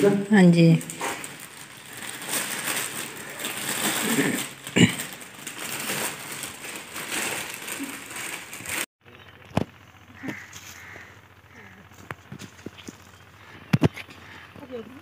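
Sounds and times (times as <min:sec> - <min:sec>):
plastic bags and clothes rustling: 0:00.0 - 0:08.9.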